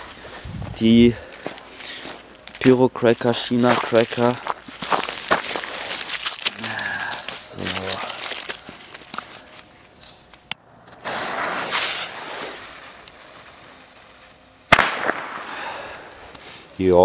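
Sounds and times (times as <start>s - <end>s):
firecrackers going off: 10.9s - 16.4s.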